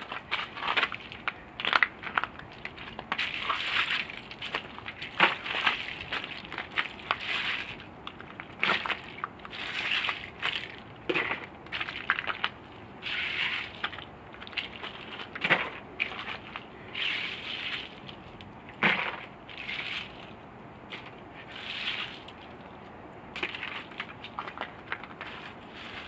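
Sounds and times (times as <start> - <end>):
ice chunks crunching and clattering: 23.4 - 26.0.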